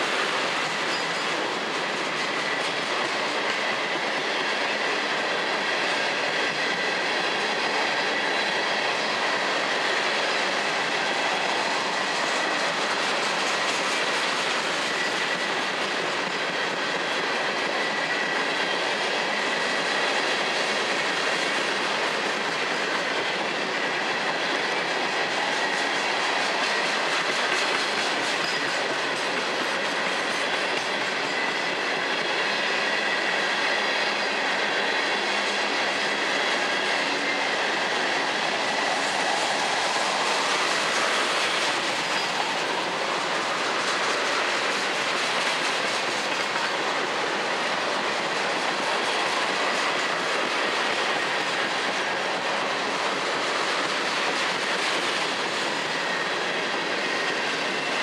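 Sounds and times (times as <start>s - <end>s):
freight train wheels clattering: 0.0s - 58.0s
high wheel squeal: 0.8s - 1.6s, 39.6s - 44.7s.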